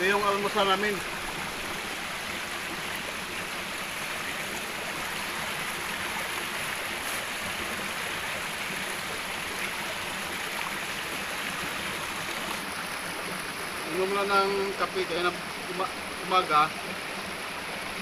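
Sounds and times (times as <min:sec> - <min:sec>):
stream rushing over rocks: 0:00.0 - 0:18.0.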